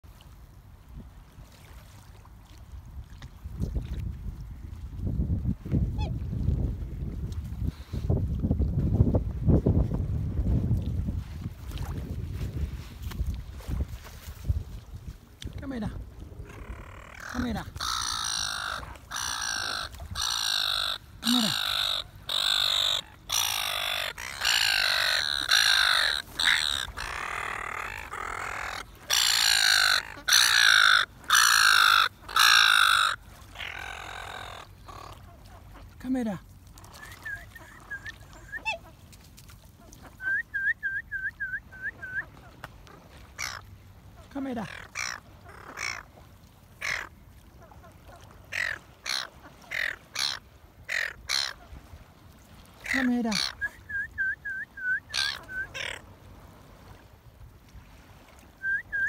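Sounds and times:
gulls squawking: 16.5s - 35.2s, 55.0s - 56.0s.

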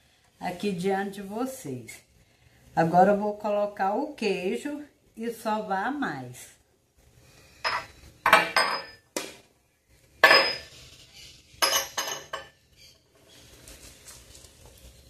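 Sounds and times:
faint rustle of grated cheese: 12.8s - 15.0s.

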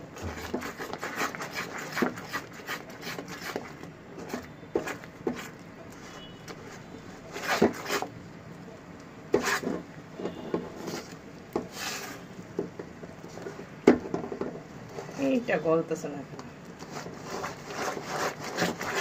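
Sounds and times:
caramel bubbling: 0.0s - 15.6s, 16.4s - 19.0s
spatula scraping metal pot: 0.2s - 5.5s, 7.3s - 8.1s, 9.4s - 12.3s, 16.8s - 19.0s.

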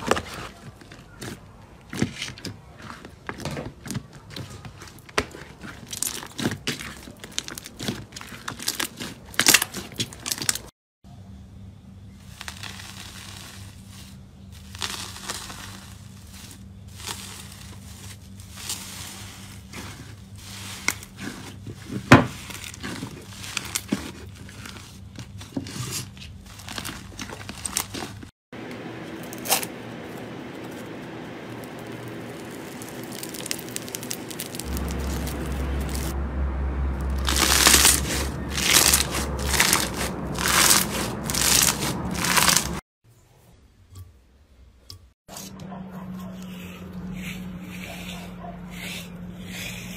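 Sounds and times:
crunchy slime crackling: 0.0s - 10.7s, 12.2s - 28.3s, 29.2s - 36.2s, 36.9s - 42.8s
foil crinkling: 0.0s - 10.7s, 12.2s - 28.3s, 29.2s - 36.2s, 37.0s - 42.8s
low hum: 28.6s - 42.8s
slime squeezed by hand: 37.1s - 42.8s.

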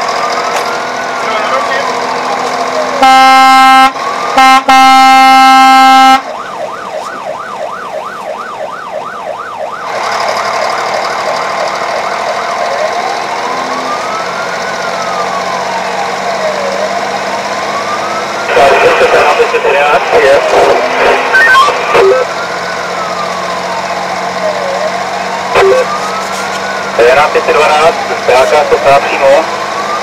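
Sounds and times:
emergency siren wail and yelp: 0.0s - 30.0s
loud horn blasts: 3.0s - 6.3s.

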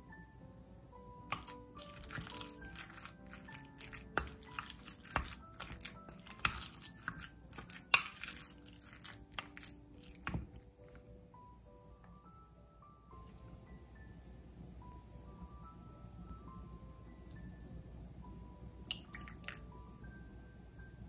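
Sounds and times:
background music: 0.0s - 21.0s
spoon mixing wet meat: 1.2s - 11.0s.

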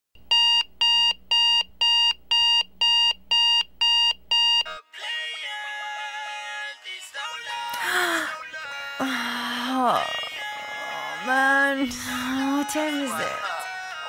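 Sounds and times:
alarm clock beeping: 0.3s - 4.7s
music: 4.8s - 14.0s.

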